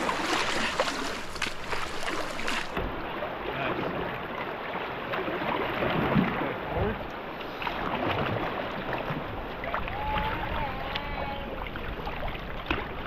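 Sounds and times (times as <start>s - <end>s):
river water rushing: 0.0s - 3.7s
paddle splashes: 0.0s - 13.0s.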